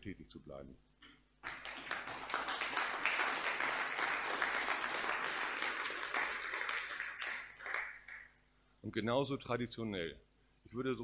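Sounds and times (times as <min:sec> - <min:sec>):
audience applause: 0:01.4 - 0:08.3.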